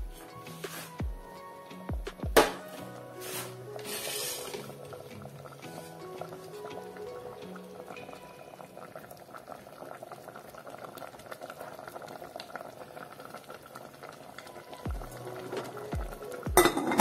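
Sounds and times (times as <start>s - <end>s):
thudding music beat: 0.0s - 3.8s, 14.9s - 17.0s
stew bubbling in a pot: 3.2s - 17.0s.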